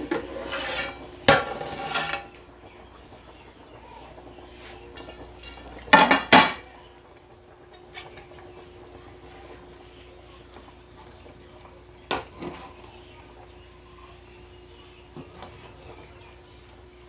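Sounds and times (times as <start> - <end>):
metal cookware clanging: 0.0 - 2.4, 4.9 - 6.7
faint steady hum: 0.0 - 17.0.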